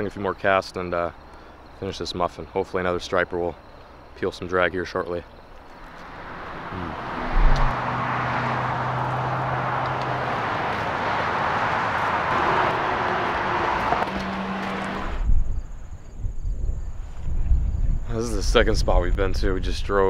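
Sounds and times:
low hum changing pitch: 0:06.0 - 0:08.0
wind through open car window: 0:06.4 - 0:07.8, 0:14.8 - 0:20.0.

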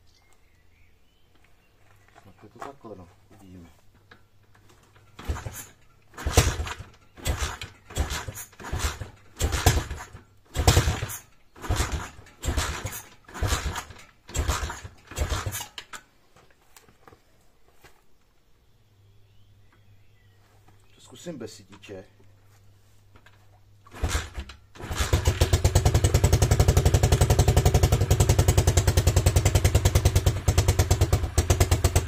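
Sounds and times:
motorbike engine kick-started: 0:04.6 - 0:16.0, 0:23.8 - 0:32.0.

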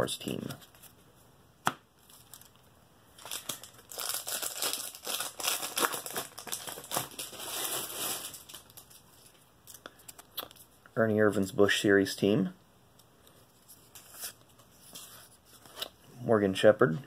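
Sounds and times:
foil packs crinkling: 0:03.2 - 0:09.4.

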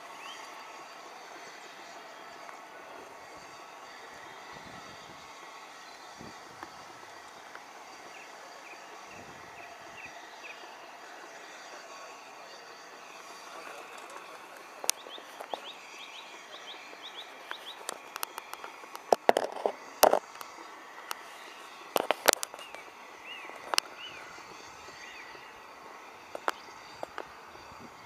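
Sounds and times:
steady background hiss: 0:00.0 - 0:28.0
bird chirping: 0:00.1 - 0:04.6, 0:05.3 - 0:18.8, 0:20.4 - 0:27.1
sharp clicks and knocks: 0:17.4 - 0:21.2.

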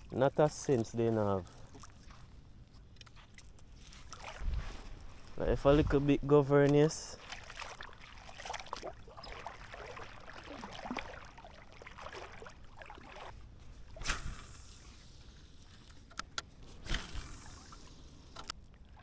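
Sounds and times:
water sloshing and lapping: 0:00.0 - 0:19.0
sharp splashes: 0:03.9 - 0:04.9, 0:06.6 - 0:15.0.

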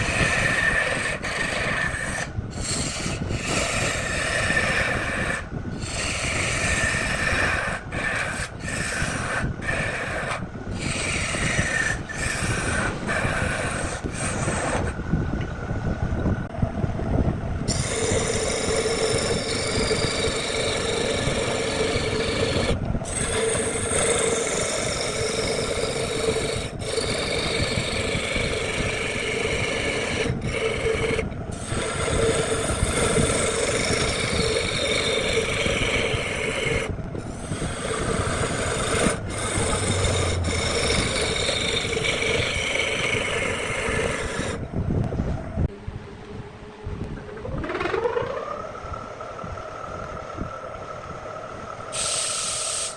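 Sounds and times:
tool scraping wood on lathe: 0:00.0 - 0:15.0, 0:17.7 - 0:44.6
lathe humming: 0:00.0 - 0:15.5, 0:17.7 - 0:44.6.

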